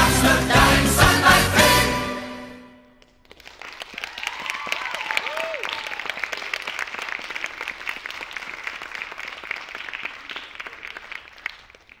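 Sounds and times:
audience applauding: 0:03.0 - 0:12.0.

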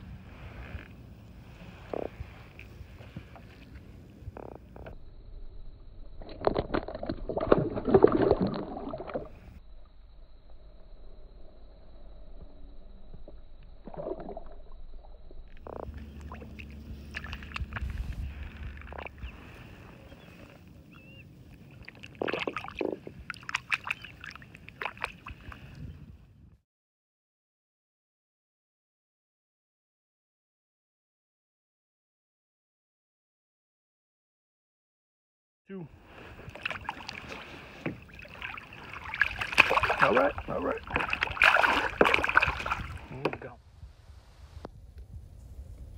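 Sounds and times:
fish splashing in water: 0:06.2 - 0:09.6, 0:15.5 - 0:20.3, 0:21.1 - 0:25.6, 0:36.3 - 0:43.2.

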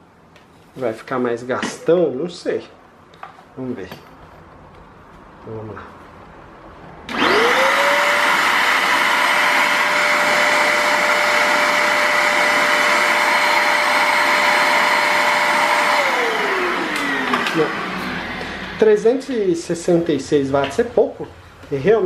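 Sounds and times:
handheld vacuum cleaner whining: 0:07.1 - 0:18.8.

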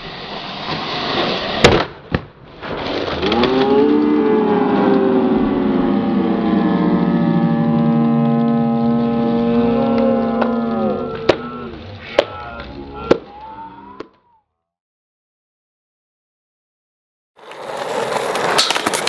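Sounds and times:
skateboard slamming on concrete: 0:00.2 - 0:03.5, 0:17.4 - 0:19.0
spectators groaning: 0:03.2 - 0:14.4.

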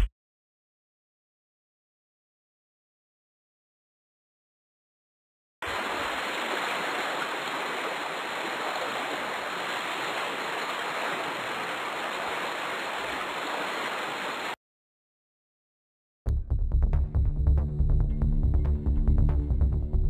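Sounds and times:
water rushing and pouring: 0:05.6 - 0:14.6.

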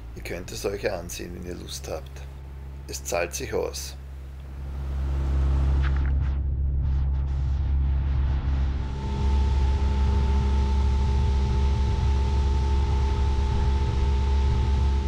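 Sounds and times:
steady whine: 0:00.0 - 0:15.0.

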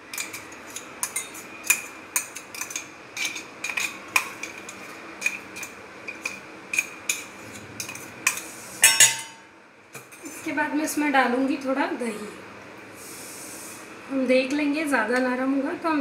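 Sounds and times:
spoon clinking in metal jar: 0:08.8 - 0:09.4.

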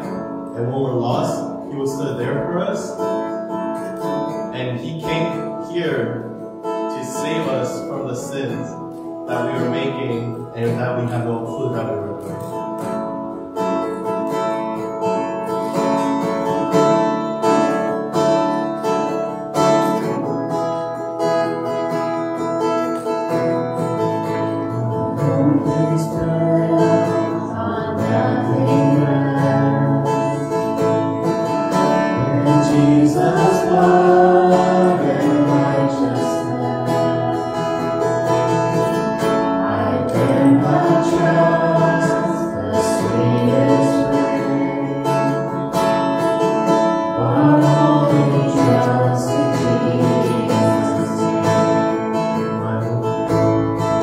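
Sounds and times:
strummed acoustic guitar: 0:00.0 - 0:54.0
voices singing along: 0:24.8 - 0:30.6, 0:31.8 - 0:38.1, 0:39.1 - 0:45.8, 0:47.0 - 0:51.7.

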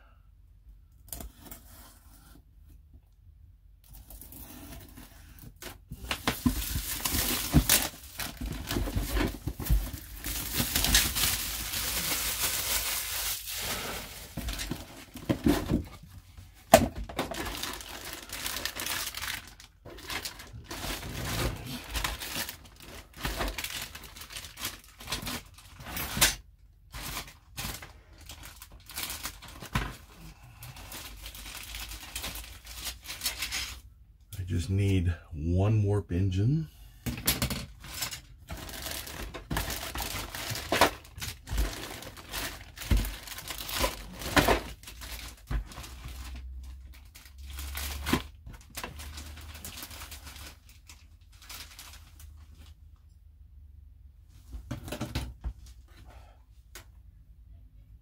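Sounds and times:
plastic bags crinkling: 0:06.0 - 0:26.2, 0:26.9 - 0:33.8, 0:37.7 - 0:52.8.

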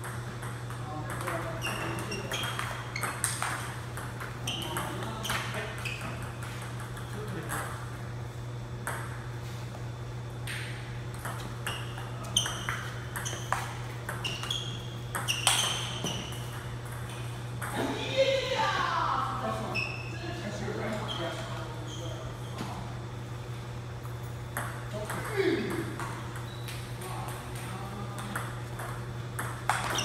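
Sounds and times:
table tennis balls clicking: 0:00.0 - 0:07.8, 0:10.4 - 0:17.8, 0:24.6 - 0:30.0.

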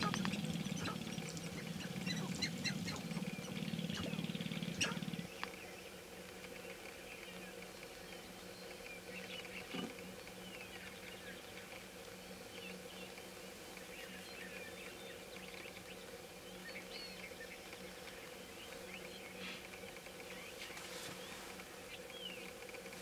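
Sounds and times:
grouse chirping and clucking: 0:00.0 - 0:05.7
steady low hum: 0:00.0 - 0:23.0.

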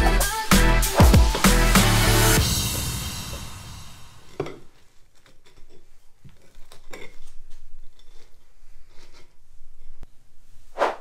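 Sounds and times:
knife crunching through crust: 0:05.0 - 0:09.4.

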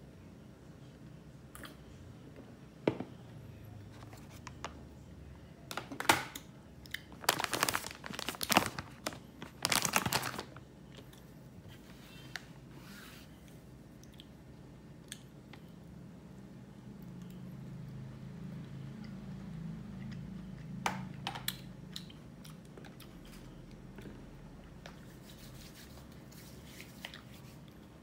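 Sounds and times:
paper napkin crinkling: 0:07.1 - 0:10.6.

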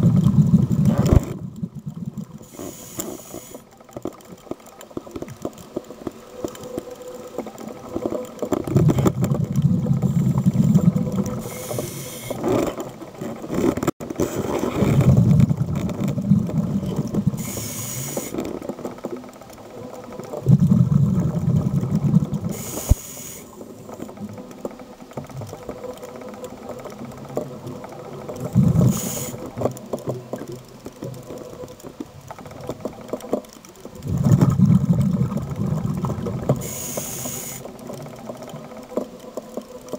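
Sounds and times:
exhaled bubbles rumbling underwater: 0:00.0 - 0:03.6, 0:04.3 - 0:39.9
regulator inhale hiss: 0:02.4 - 0:03.8, 0:11.3 - 0:12.5, 0:17.4 - 0:18.5, 0:22.5 - 0:23.8, 0:28.8 - 0:29.6, 0:36.6 - 0:37.8.

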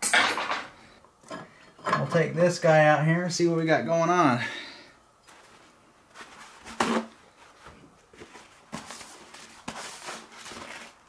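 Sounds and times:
paper towel rustling on metal: 0:05.3 - 0:11.0
paper towel tearing: 0:08.9 - 0:11.0.

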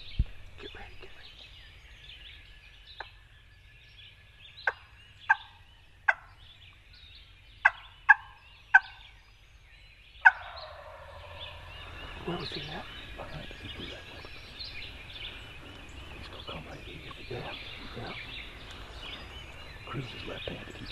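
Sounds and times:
turkey gobbler calling: 0:04.6 - 0:06.6, 0:07.6 - 0:09.2, 0:10.2 - 0:20.9.

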